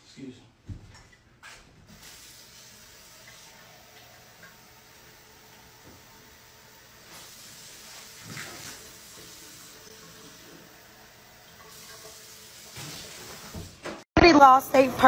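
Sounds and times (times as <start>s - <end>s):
water running in a sink: 0.9s - 14.0s.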